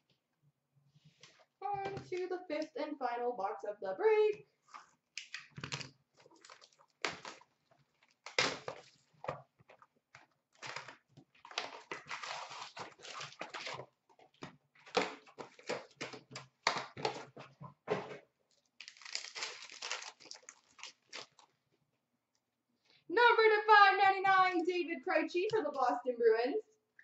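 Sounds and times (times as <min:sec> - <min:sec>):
wrappers crinkling and tearing: 0:10.6 - 0:13.9, 0:18.6 - 0:21.5.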